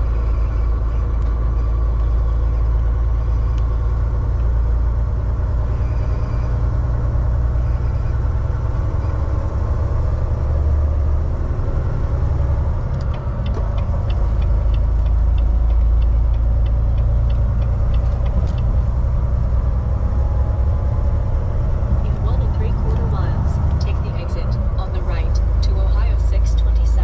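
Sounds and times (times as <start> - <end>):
truck engine and road rumble: 0.0 - 27.0
light evenly spaced clicks: 12.9 - 19.0.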